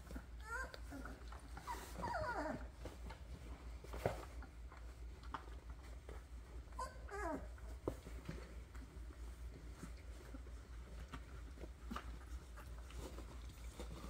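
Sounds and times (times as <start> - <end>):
puppies whimpering: 0.0 - 2.8, 6.8 - 7.8.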